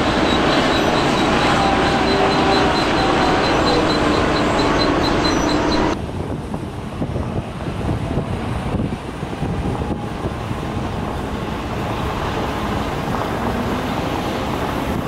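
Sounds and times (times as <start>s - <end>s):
high rapid pulsing tone: 0.0s - 6.0s
diesel engine running under load: 0.0s - 15.0s
engine and gravel rumble: 0.0s - 15.0s.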